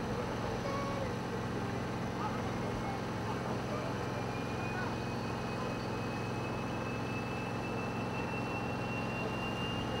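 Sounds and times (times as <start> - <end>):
jet engines taxiing: 2.6 - 10.0
high engine whine rising: 4.1 - 10.0.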